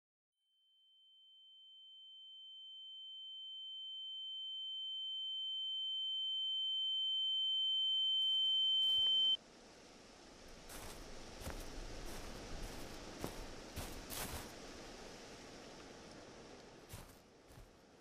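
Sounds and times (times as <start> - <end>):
high-pitched ringing tone: 0.5 - 9.4.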